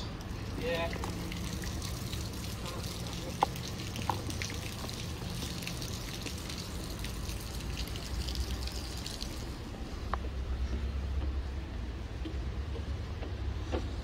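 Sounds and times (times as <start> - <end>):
fountain water splashing: 0.0 - 10.0.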